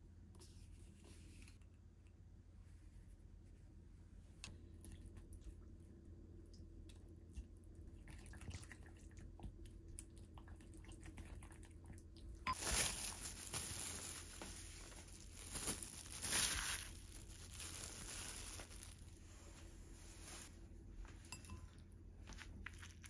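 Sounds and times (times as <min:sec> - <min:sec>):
wet squishing and sloshing: 0:04.7 - 0:19.1, 0:22.2 - 0:23.0.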